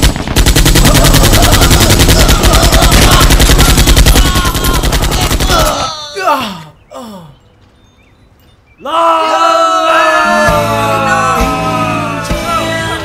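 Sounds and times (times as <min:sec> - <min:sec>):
automatic machine-gun fire: 0:00.0 - 0:05.8.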